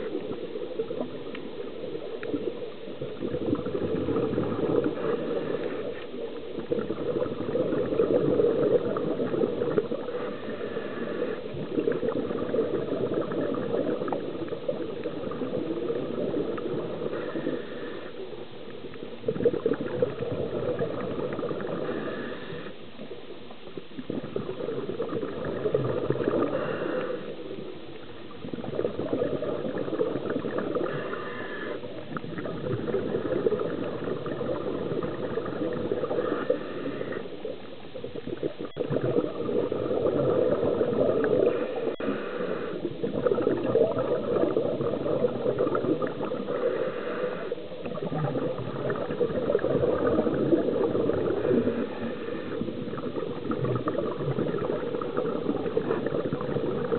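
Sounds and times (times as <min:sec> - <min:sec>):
exhaled bubbles rushing: 0:00.0 - 0:17.7, 0:19.1 - 0:56.9
regulator breath in: 0:10.2 - 0:11.5, 0:21.8 - 0:22.9, 0:26.4 - 0:27.5, 0:30.9 - 0:31.9, 0:41.4 - 0:42.9, 0:46.6 - 0:47.7, 0:51.4 - 0:52.8.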